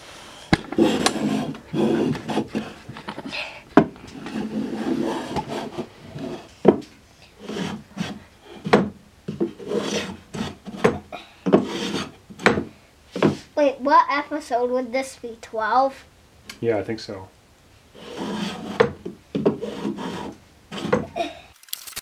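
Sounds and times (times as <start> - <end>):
hand plane shaving wood: 0.6 - 6.5, 7.4 - 12.2, 18.0 - 21.2
sharp knocks: 10.7 - 13.4.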